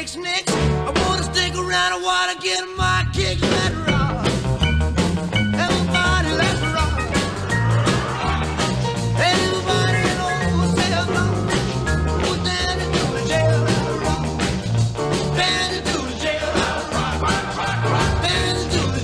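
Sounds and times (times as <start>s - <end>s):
rock and roll music: 0.0s - 19.0s.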